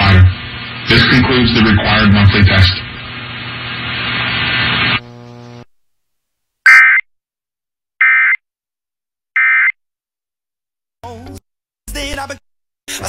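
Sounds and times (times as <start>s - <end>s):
faint hum: 0.0s - 5.7s
buzzing digital data bursts: 4.4s - 5.7s.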